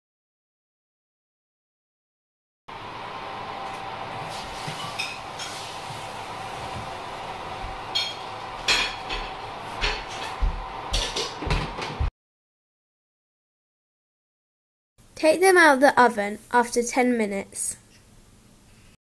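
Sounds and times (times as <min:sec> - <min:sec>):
steady hum: 0:02.7 - 0:12.1
baking trays clinking on oven racks: 0:07.9 - 0:10.4.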